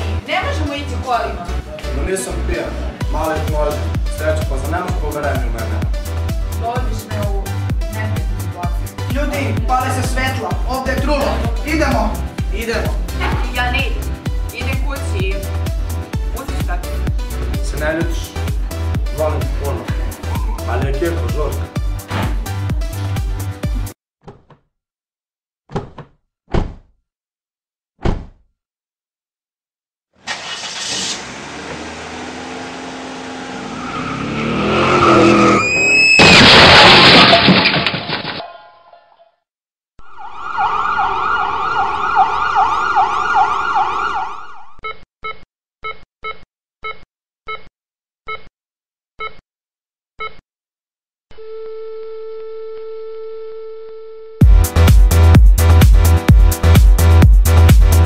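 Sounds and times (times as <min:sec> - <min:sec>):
tyre screech and crash: 0:30.2 - 0:32.3, 0:33.6 - 0:38.7
car accelerating: 0:30.3 - 0:35.8
siren: 0:35.1 - 0:36.2, 0:40.0 - 0:44.8.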